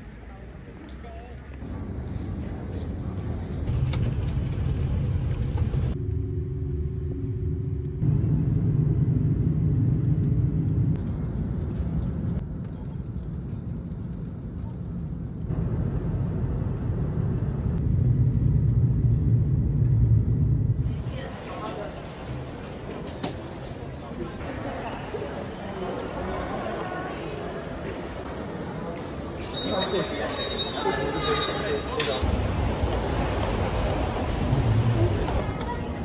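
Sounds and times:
vehicle engine rumble: 0.0 - 23.8, 32.2 - 36.0.

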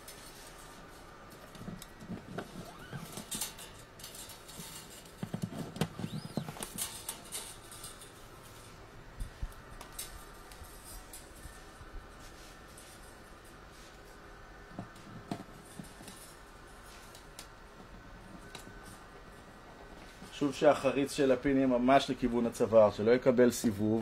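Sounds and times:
guitar strings and pins clicking: 1.3 - 8.2.

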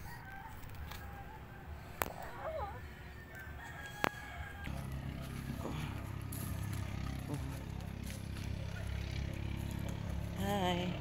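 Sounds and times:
rooster crowing: 0.0 - 1.7, 2.5 - 6.0.

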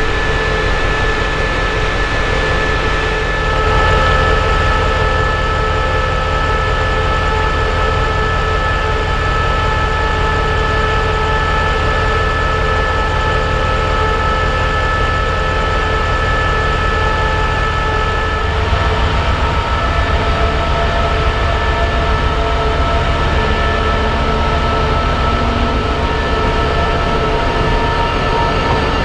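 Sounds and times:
deeper pulsing rumble: 0.0 - 29.0
whining tones: 0.0 - 29.0
locomotive engine idling: 17.9 - 29.0.

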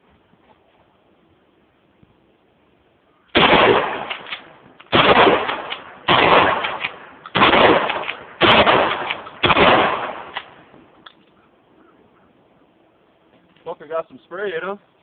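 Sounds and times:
shotgun shots with echo: 3.4 - 10.6.

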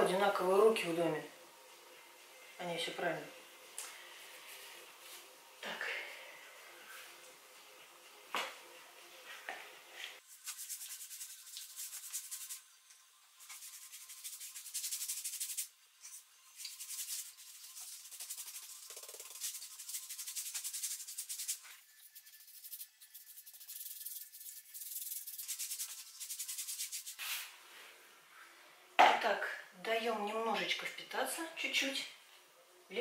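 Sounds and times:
paintbrush scraping on wooden board: 13.4 - 27.4.

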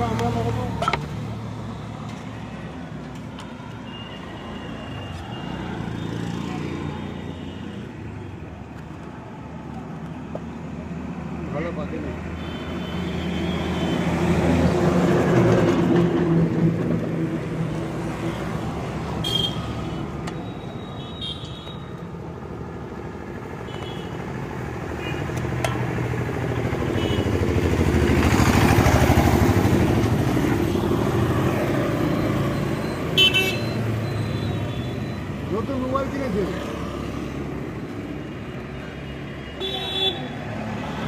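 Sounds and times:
motorcycles passing: 0.0 - 9.7, 22.2 - 41.0
street traffic passing: 0.0 - 41.0.

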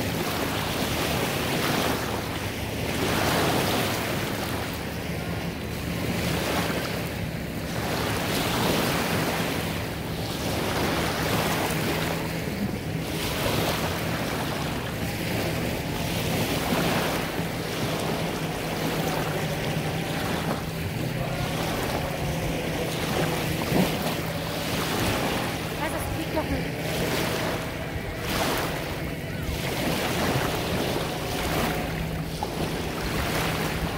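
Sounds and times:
distant motorboat engine hum: 0.0 - 33.9
waves washing onto sandy shore: 0.0 - 33.9
wind on microphone: 0.0 - 33.9.

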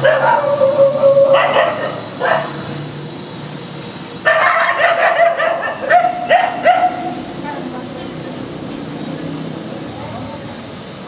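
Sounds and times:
dogs barking and yelping: 0.0 - 2.8, 4.2 - 7.7.

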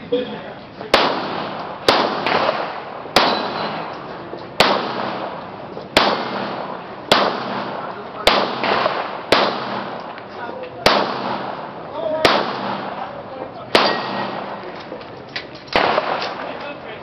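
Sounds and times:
handgun shots ringing: 0.9 - 10.2, 10.8 - 11.6, 13.8 - 14.9, 15.7 - 16.6.

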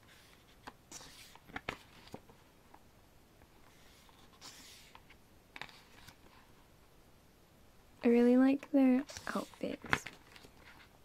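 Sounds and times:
book pages turning: 0.0 - 2.4, 3.6 - 6.5, 9.0 - 10.9.

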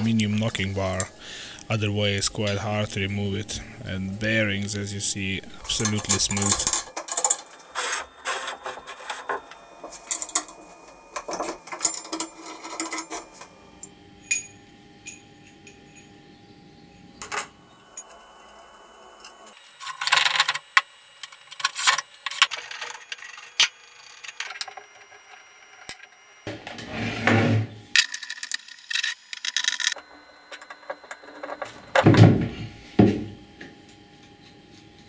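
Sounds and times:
metal parts clinking and scraping: 5.6 - 13.5, 21.5 - 26.1, 28.0 - 30.0.

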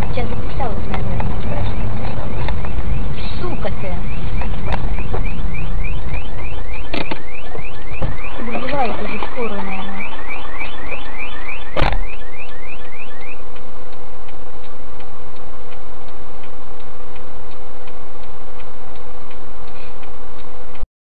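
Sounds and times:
faint ticking: 0.0 - 20.8
rising electronic chirp: 1.4 - 13.4
sharp bang: 10.4 - 12.2.

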